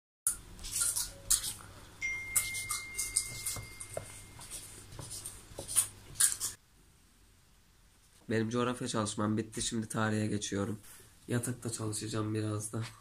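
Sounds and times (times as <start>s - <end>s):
marker scratching on paper: 3.3s - 6.6s.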